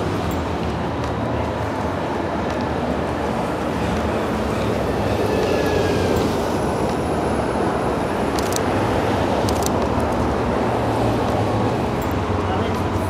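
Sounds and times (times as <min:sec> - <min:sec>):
city street traffic: 0:00.0 - 0:13.0
camera shutter clicks: 0:08.3 - 0:08.7, 0:09.4 - 0:09.8.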